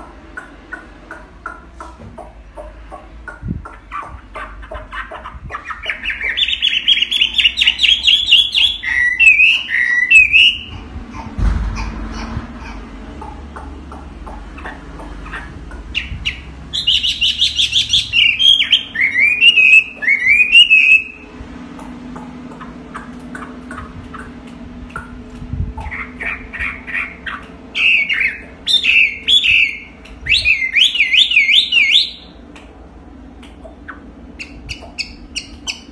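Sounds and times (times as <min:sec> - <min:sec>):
bird singing whistled phrases: 0:05.7 - 0:10.7, 0:16.0 - 0:21.2, 0:27.8 - 0:32.3
bird singing whistled notes: 0:27.8 - 0:32.3.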